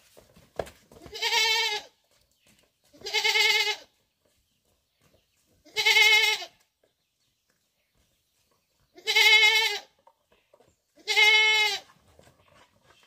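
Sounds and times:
goat bleating: 1.0 - 2.0, 2.9 - 3.9, 5.6 - 6.6, 8.9 - 10.0, 11.0 - 12.0.

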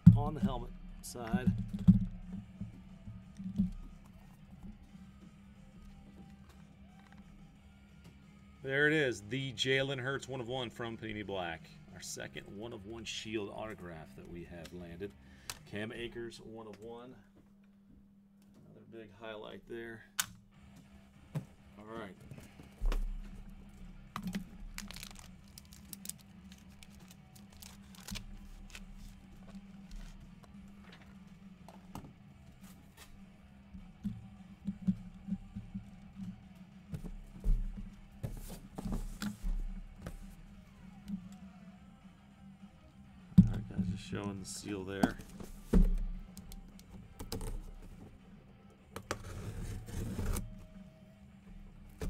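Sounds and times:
packaging crinkling: 24.3 - 29.7.

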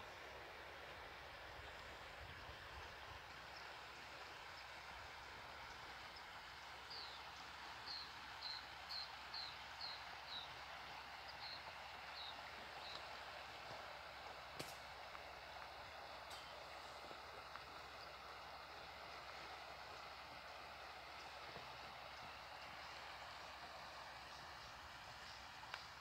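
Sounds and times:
outdoor background hiss: 0.0 - 26.0
bird chirping: 7.9 - 10.5.

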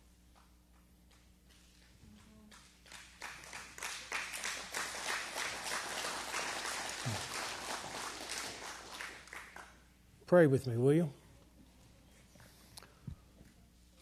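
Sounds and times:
audience applauding: 2.6 - 9.8.

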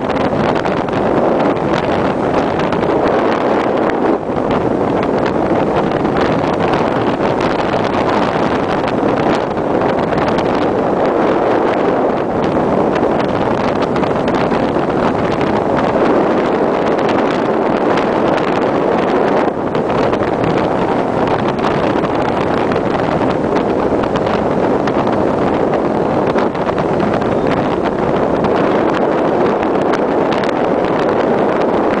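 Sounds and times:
sea rushing along ship hull: 0.0 - 32.0
wind buffeting microphone: 0.0 - 32.0.

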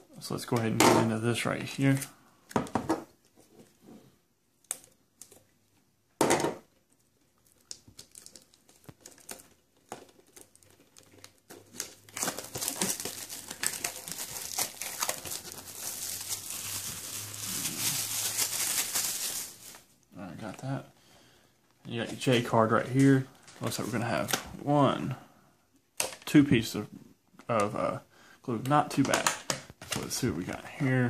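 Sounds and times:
plastic shrink wrap crinkling: 6.8 - 20.8.

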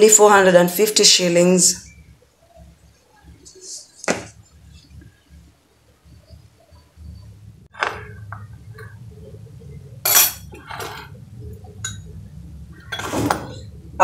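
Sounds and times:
metal utensils clinking on glass bowl: 10.0 - 11.2.

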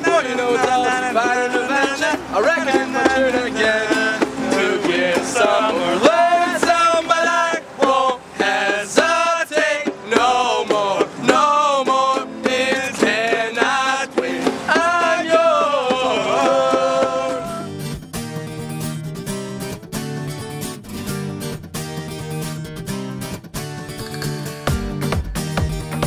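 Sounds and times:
men singing together: 0.0 - 17.7
hand drum: 0.0 - 26.0
strummed acoustic guitar: 0.0 - 26.0.

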